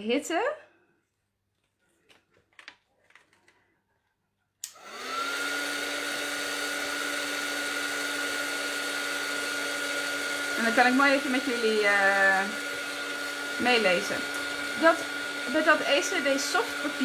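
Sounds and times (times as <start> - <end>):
heat gun switch click: 4.6 - 4.8
heat gun fan humming: 4.6 - 17.0.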